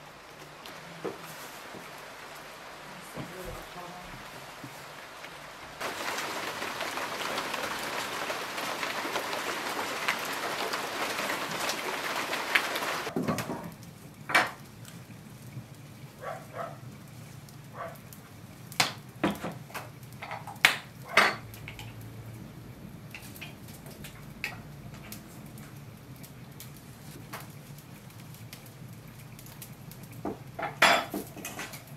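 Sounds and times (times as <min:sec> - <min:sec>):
rain falling on foliage: 0:00.0 - 0:31.9
wood fire crackling: 0:00.0 - 0:31.9.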